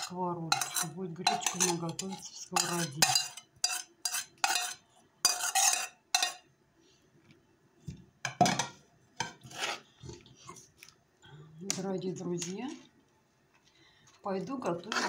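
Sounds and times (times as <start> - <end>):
utensil scraping enamel bowl: 0.0 - 6.4, 9.2 - 9.9, 14.7 - 15.0.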